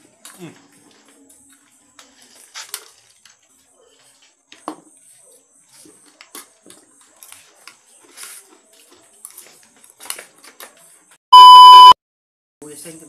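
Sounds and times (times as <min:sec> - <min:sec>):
loud test-tone beep: 0:11.3 - 0:12.0.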